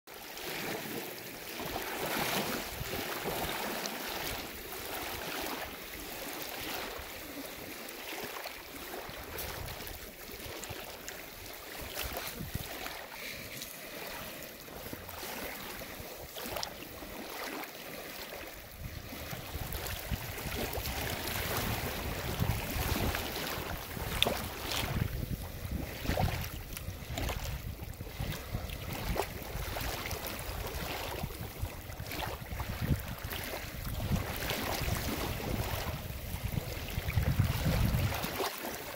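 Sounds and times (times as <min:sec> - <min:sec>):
waves lapping over pebbles: 0:00.1 - 0:38.9
wind: 0:00.1 - 0:38.9
wind rumble on microphone: 0:08.7 - 0:13.0, 0:18.4 - 0:38.6.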